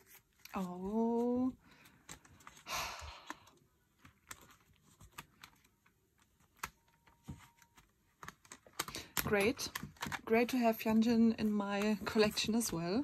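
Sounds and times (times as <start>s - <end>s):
clicks and taps of handling packaging: 1.7s - 13.0s.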